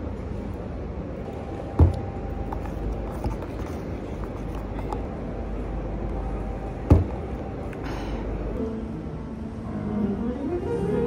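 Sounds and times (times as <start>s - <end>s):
low rumbling background noise: 0.0s - 11.0s
sharp thump: 1.8s - 2.2s, 6.9s - 7.3s.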